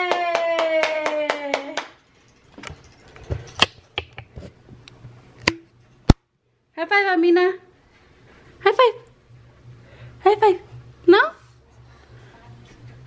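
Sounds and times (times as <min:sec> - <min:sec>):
hands clapping quickly: 0:00.0 - 0:02.0.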